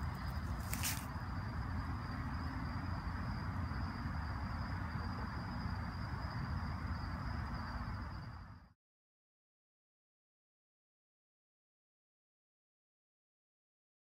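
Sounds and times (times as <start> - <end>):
crickets trilling: 0.0 - 8.7.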